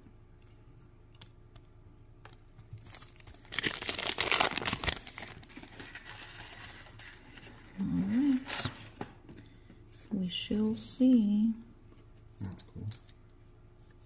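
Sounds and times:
foil wrapper crinkling and tearing: 2.8s - 7.1s.

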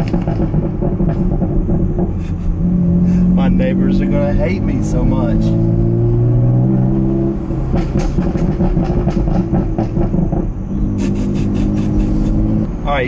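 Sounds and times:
car exhaust drone with burbles and pops: 0.0s - 13.0s.

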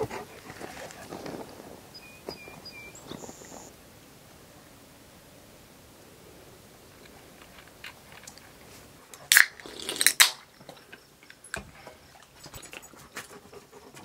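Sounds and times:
can cracking open: 9.1s - 10.5s.

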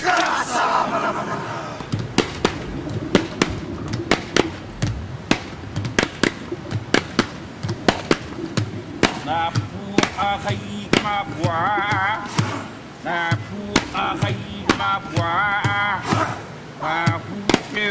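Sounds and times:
steady rushing noise: 0.0s - 16.8s
sharp knocks: 1.8s - 12.6s.

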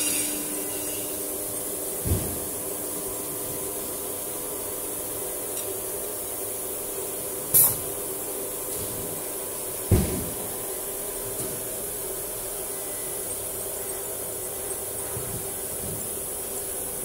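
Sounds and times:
cnc router humming: 0.0s - 2.1s.

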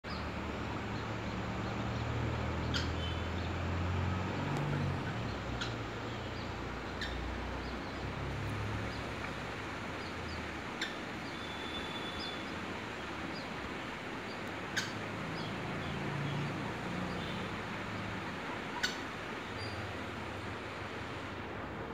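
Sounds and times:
waterhens chirping and peeping: 18.2s - 19.8s.

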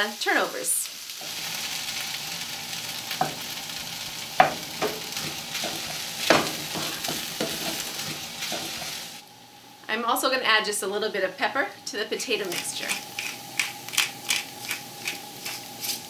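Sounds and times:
food sizzling in a pan: 0.0s - 9.2s, 12.2s - 16.0s
utensil scraping and knocking pan: 4.4s - 8.9s.

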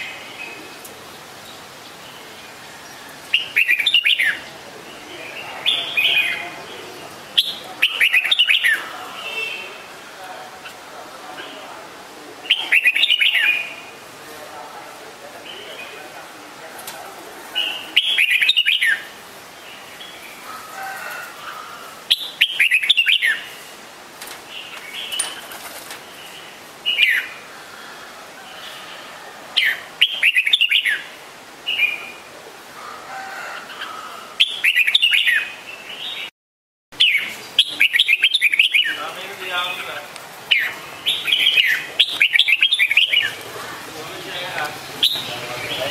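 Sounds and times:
bird singing chirpy phrases: 0.0s - 10.0s, 12.4s - 14.1s, 15.4s - 16.1s, 17.6s - 20.4s, 22.1s - 23.8s, 24.5s - 27.4s, 29.6s - 32.3s, 33.7s - 36.3s, 37.0s - 45.9s
soft bird calls: 0.0s - 14.5s, 15.2s - 36.3s, 37.0s - 45.9s.

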